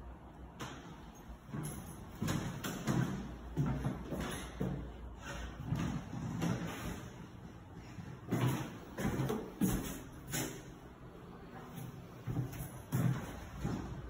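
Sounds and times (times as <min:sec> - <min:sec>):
footsteps on bare floor: 0:01.5 - 0:05.0, 0:11.6 - 0:14.0.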